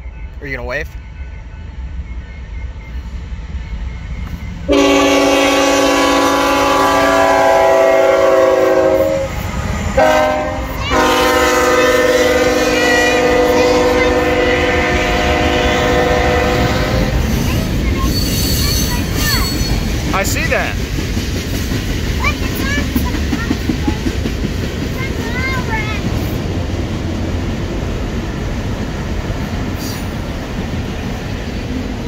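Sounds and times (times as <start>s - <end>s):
train wheels rumbling on rails: 0.0s - 32.0s
locomotive air horn: 4.7s - 9.4s, 10.0s - 17.2s.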